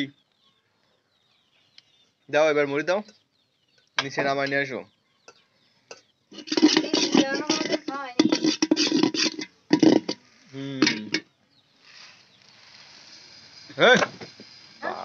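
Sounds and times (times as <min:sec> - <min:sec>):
people talking: 0:06.6 - 0:08.3, 0:10.5 - 0:11.1
puffed rice pouring: 0:11.8 - 0:15.0.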